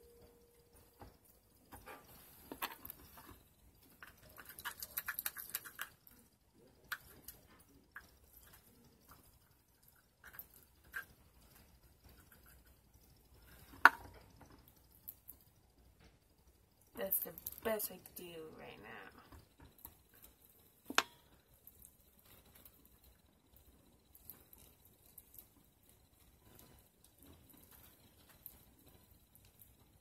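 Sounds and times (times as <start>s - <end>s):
slime clicking and crackling: 3.9s - 6.2s.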